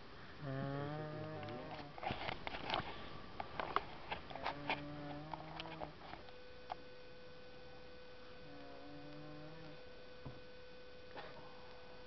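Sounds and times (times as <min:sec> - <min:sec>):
steady hum: 0:00.0 - 0:12.0
man snoring: 0:00.4 - 0:01.9, 0:08.4 - 0:09.8.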